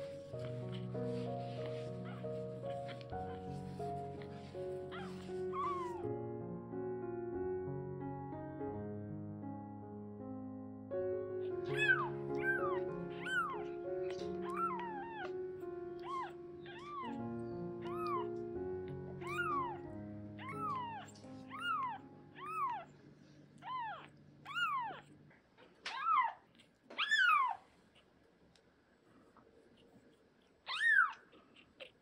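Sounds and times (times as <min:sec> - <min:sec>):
background music: 0:00.0 - 0:22.9
kitten mewing: 0:02.0 - 0:06.0, 0:11.7 - 0:15.4, 0:16.0 - 0:17.2, 0:17.8 - 0:18.3, 0:19.2 - 0:22.9, 0:23.6 - 0:25.0.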